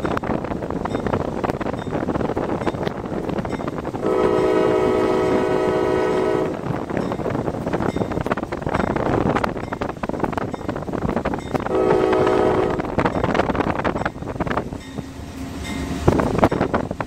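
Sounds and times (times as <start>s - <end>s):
road and wind noise: 0.0s - 17.0s
train rumble: 0.0s - 17.0s
train air horn: 4.0s - 6.7s, 11.7s - 12.9s.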